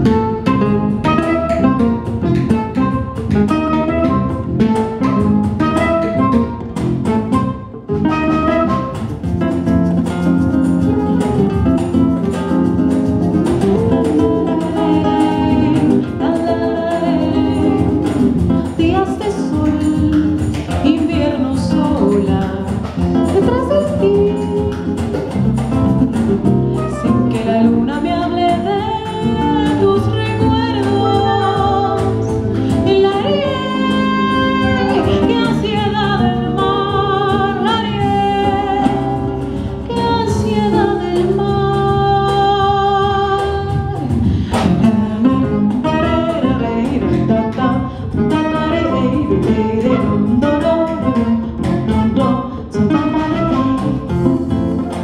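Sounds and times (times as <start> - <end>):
acoustic guitar: 0.0 - 55.0
drum kit percussion: 0.0 - 55.0
electric bass: 0.0 - 55.0
woman singing: 11.8 - 25.2, 26.8 - 55.0.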